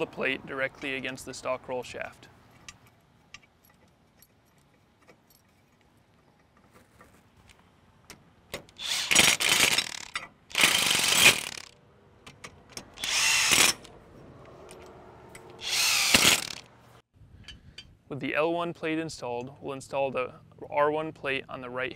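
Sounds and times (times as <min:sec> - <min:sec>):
impact driver running: 0:08.8 - 0:11.7, 0:13.0 - 0:13.8, 0:15.6 - 0:16.7.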